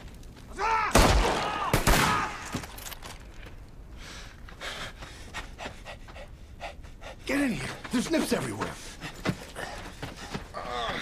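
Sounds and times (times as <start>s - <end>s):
man panting hard: 4.0s - 7.9s, 8.6s - 11.0s.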